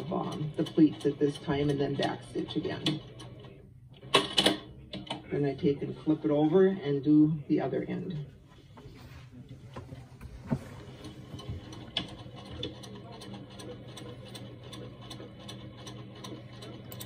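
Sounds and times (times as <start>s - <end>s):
sewing machine stitching: 10.7s - 17.0s.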